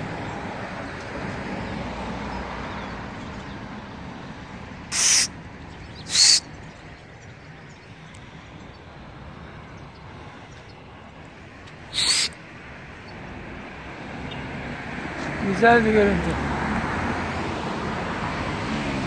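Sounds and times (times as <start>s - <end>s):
distant traffic hum: 0.0s - 19.0s
loud hissing bursts: 4.9s - 5.3s, 6.1s - 6.4s, 11.9s - 12.3s.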